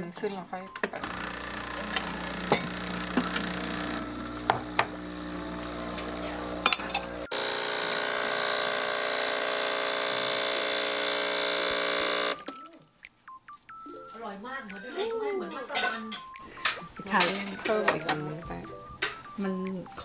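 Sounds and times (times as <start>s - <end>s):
espresso machine pump humming: 1.0s - 12.4s.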